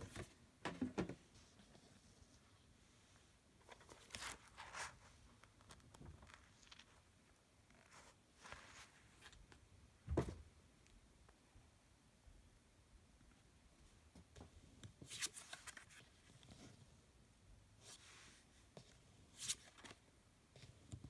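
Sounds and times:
book pages rustling: 3.6 - 7.0, 15.0 - 16.8
dull thump on a table: 10.1 - 10.4.

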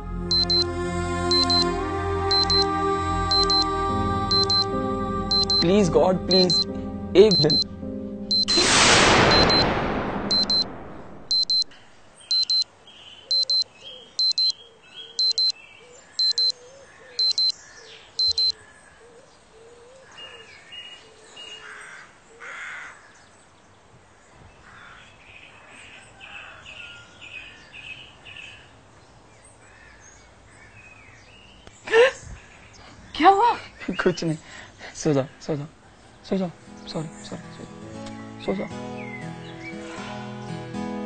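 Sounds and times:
alarm clock beeping: 0.3 - 0.7, 1.3 - 1.7, 2.3 - 2.6, 3.3 - 3.7, 4.3 - 4.7, 5.3 - 5.7, 6.3 - 7.7, 8.3 - 8.7, 9.3 - 9.7, 10.3 - 12.6, 13.3 - 14.6, 15.2 - 15.5, 16.2 - 16.6, 17.2 - 17.6, 18.2 - 18.6
birds chirping: 10.7 - 23.9, 24.5 - 40.0.

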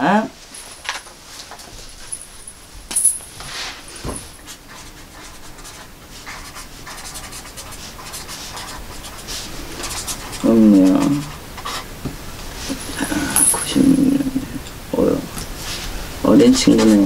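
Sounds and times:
pen scratching on paper: 4.4 - 11.9, 16.6 - 17.0.

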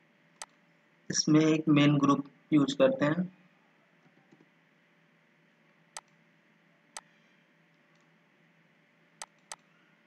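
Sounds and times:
computer mouse clicks: 6.0 - 6.2, 7.0 - 7.2, 7.8 - 8.1, 9.2 - 9.7.

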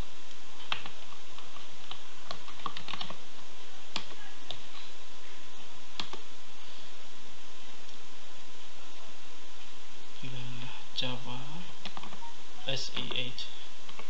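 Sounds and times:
computer keyboard typing: 0.6 - 3.2, 3.9 - 4.8, 6.0 - 6.2, 11.8 - 12.3.

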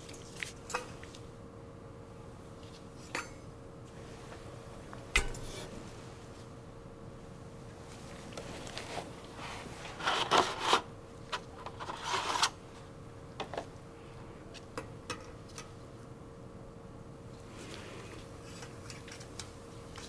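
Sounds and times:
cardboard scraping and rubbing: 8.6 - 10.9, 11.7 - 12.6.

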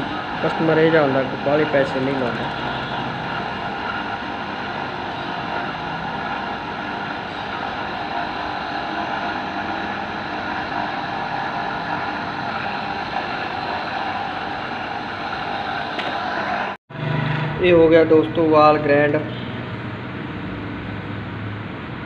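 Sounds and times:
valve grinding with paste: 0.0 - 16.5.

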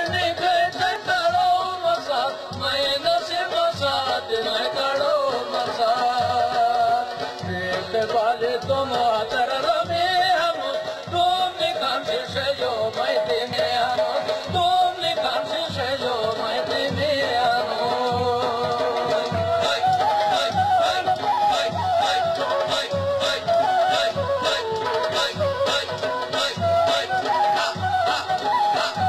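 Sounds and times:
drum beat: 11.2 - 29.0.

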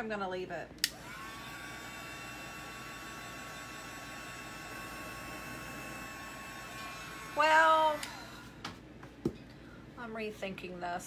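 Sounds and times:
hair dryer running: 0.8 - 8.8.

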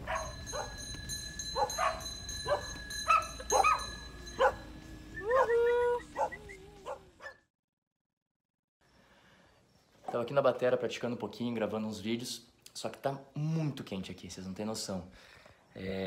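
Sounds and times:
dog barking and yipping: 0.0 - 0.8, 1.5 - 7.4
dog whining: 4.4 - 7.4.

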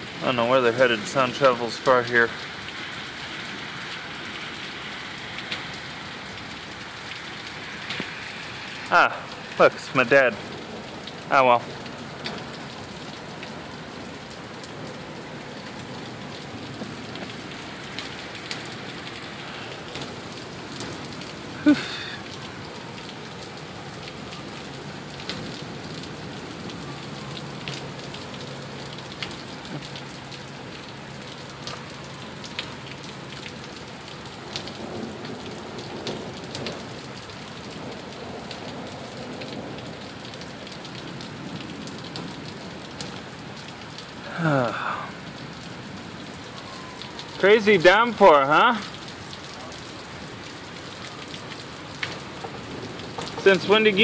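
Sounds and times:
heavy rain: 0.0 - 54.0
raindrops ticking on surfaces: 0.0 - 54.0.

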